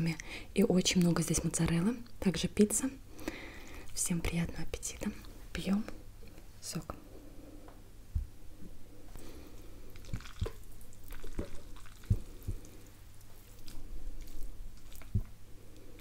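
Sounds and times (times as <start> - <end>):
fork twirling wet pasta: 10.0 - 15.3.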